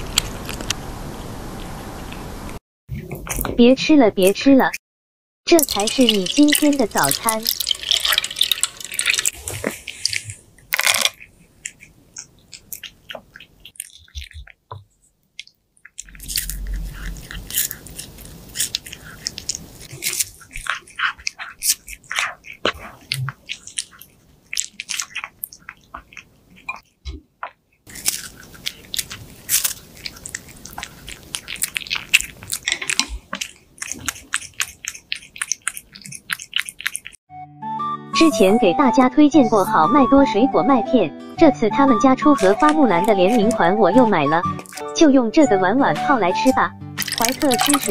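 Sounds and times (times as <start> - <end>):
cat chewing crunchy food: 5.5 - 37.2, 42.3 - 45.2, 46.1 - 47.9.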